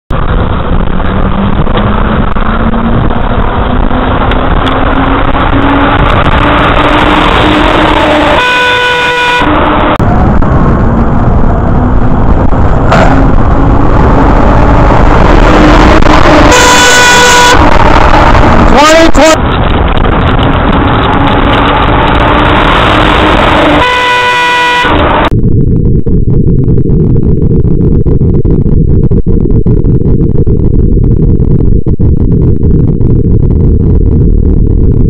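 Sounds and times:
truck engine rising in pitch: 0.1 - 35.0
wind and road noise: 0.1 - 35.0
truck horn blast: 4.0 - 10.0, 12.9 - 18.7, 20.6 - 25.3.

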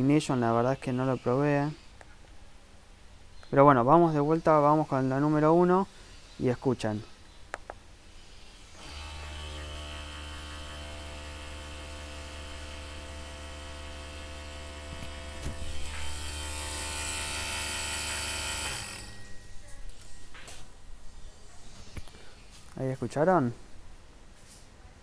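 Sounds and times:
electric pump motor running: 8.6 - 19.4.

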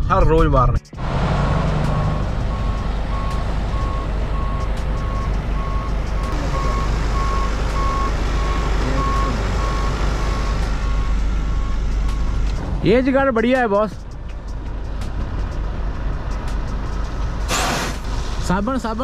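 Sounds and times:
low vehicle rumble: 0.0 - 19.0
reversing alarm beeping: 1.8 - 12.4.

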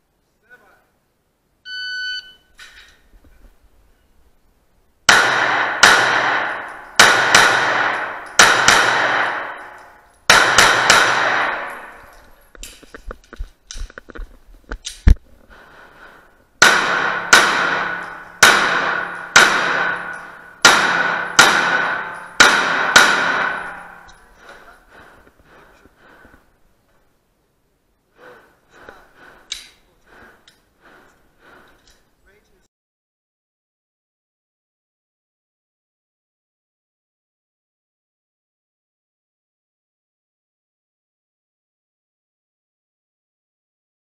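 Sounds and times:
sharp knock: 5.1 - 9.6, 10.3 - 11.8, 16.6 - 24.0
pistol shots echoing: 5.1 - 12.1, 16.6 - 24.1
gun handling clicks: 12.2 - 15.2, 29.5 - 29.8.

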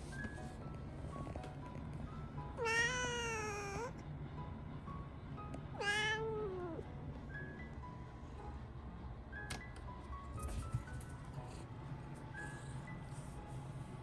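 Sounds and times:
soft background music: 0.0 - 14.0
cat meowing: 2.6 - 4.0, 5.8 - 6.8.

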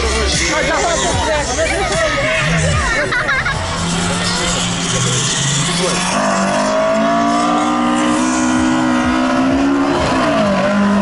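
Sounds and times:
race car engine revving: 0.0 - 11.0.

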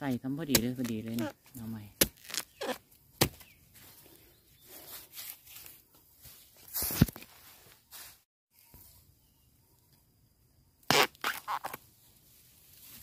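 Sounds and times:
bamboo shoots cracking: 0.5 - 3.5.

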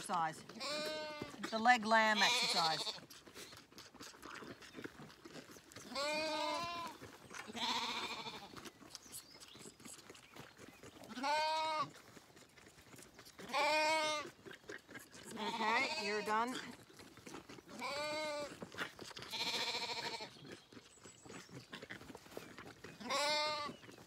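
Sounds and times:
lambs bleating: 0.1 - 3.1, 5.9 - 8.6, 11.0 - 12.0, 13.4 - 16.8, 17.6 - 20.5, 23.0 - 23.8.

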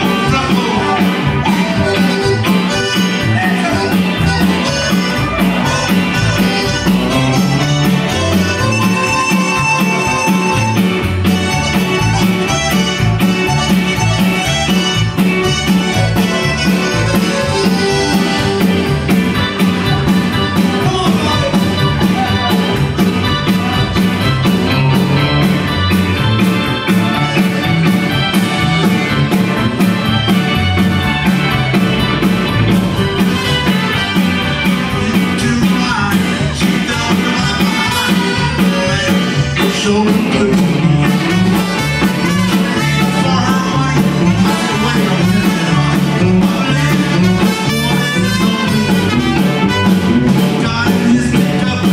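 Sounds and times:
trumpet: 0.0 - 18.6, 41.2 - 50.3
bass: 0.0 - 51.9
button accordion: 0.0 - 51.9
drum kit: 0.0 - 51.9
electric guitar: 0.0 - 51.9.

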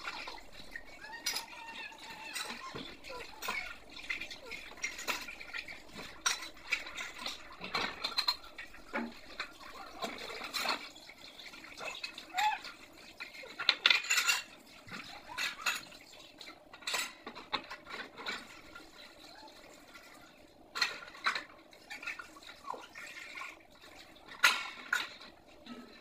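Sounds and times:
dishes clinking and knocking: 0.0 - 10.9, 13.4 - 16.0, 16.7 - 18.8, 20.7 - 22.2, 24.3 - 26.0
tap water running: 0.0 - 26.0.

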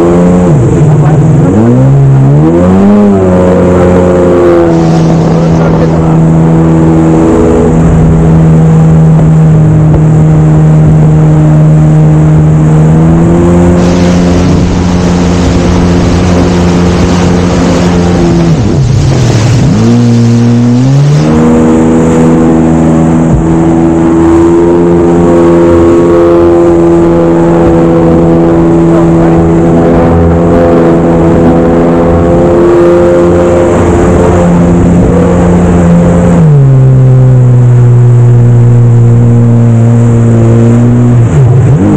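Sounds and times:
jet ski engine: 0.0 - 41.9
water spray hiss: 13.8 - 16.5.

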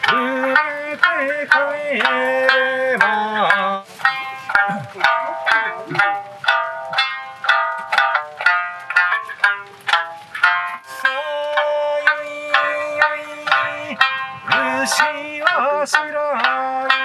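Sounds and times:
plucked lute: 0.0 - 17.0
person singing long note: 0.1 - 6.2, 10.8 - 17.0.

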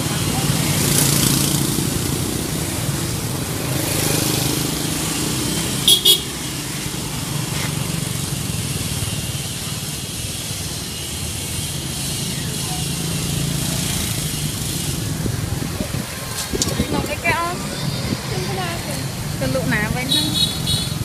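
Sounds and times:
motorbikes passing: 0.0 - 21.0
street traffic: 0.0 - 21.0
vehicle horn toots: 5.8 - 6.4, 20.1 - 21.0.

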